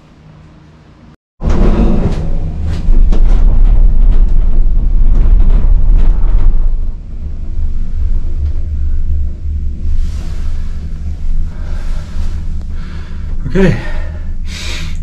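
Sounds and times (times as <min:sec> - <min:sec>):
knocks and rattles: 0:01.4 - 0:11.5
cable car cabin rumble: 0:01.4 - 0:15.0.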